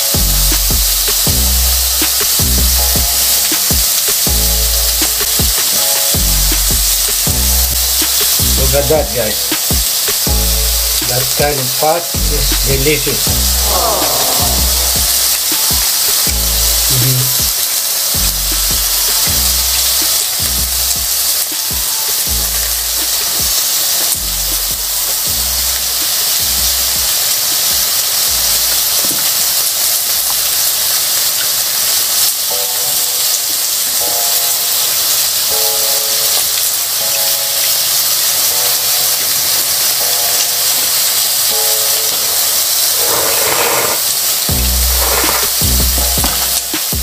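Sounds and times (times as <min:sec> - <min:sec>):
background music with bass line: 0:00.0 - 0:28.9, 0:44.4 - 0:47.0
meat sizzling on a grill pan: 0:00.0 - 0:47.0.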